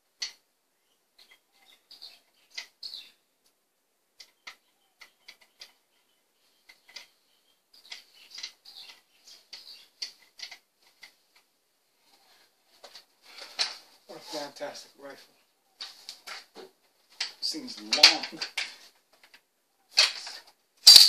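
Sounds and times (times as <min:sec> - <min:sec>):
airsoft rifle parts clicking: 0:04.2 - 0:05.8, 0:06.7 - 0:07.1, 0:07.8 - 0:11.5, 0:17.2 - 0:21.0.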